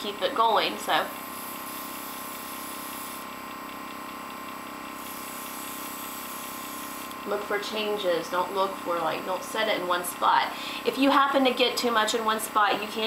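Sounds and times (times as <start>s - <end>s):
air compressor hum: 0.0s - 13.0s
airbrush spraying hiss: 1.0s - 3.3s, 5.0s - 7.2s.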